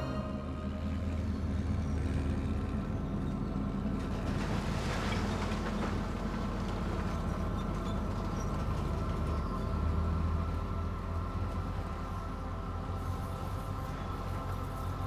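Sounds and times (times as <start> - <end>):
bulldozer engine running: 0.0 - 15.0.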